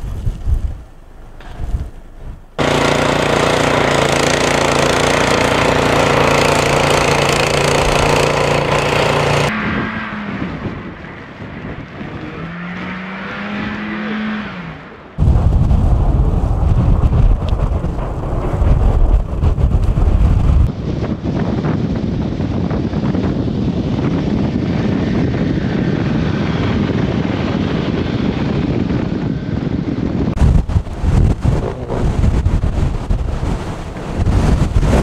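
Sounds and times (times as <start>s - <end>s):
wind buffeting microphone: 0.0s - 14.3s, 15.2s - 35.0s
snowblower engine running: 2.6s - 9.5s
car engine revving: 2.6s - 15.2s.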